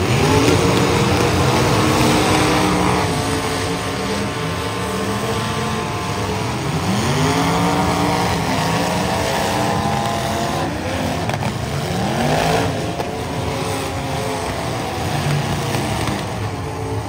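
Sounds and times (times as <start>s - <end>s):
cars knocking into each other: 0.0s - 4.3s, 11.1s - 16.7s
car engines revving hard: 0.0s - 17.0s.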